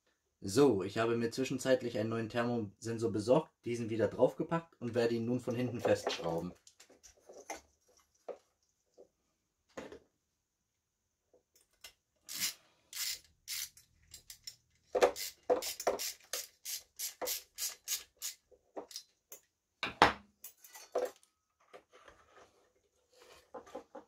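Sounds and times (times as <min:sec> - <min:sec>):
rustling of parts handled: 0:05.5 - 0:09.1
ratchet clicking: 0:12.3 - 0:14.6, 0:15.2 - 0:19.0.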